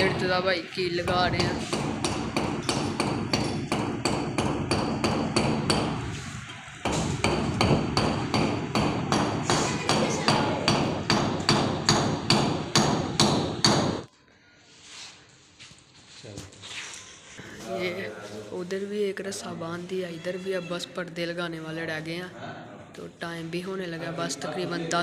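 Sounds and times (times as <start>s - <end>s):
hammer driving nail into wall: 1.7s - 6.0s, 6.8s - 14.1s.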